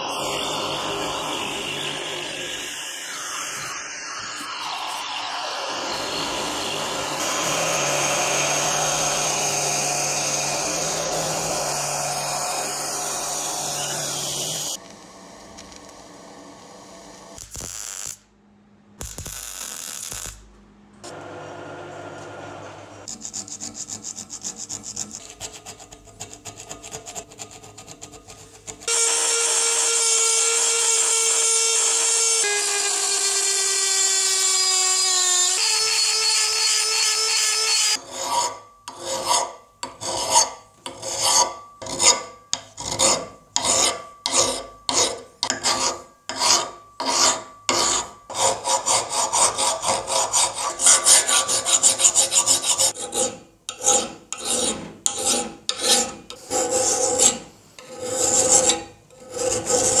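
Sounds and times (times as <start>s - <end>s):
power tool whine: 0.0s - 17.4s, 28.9s - 38.0s.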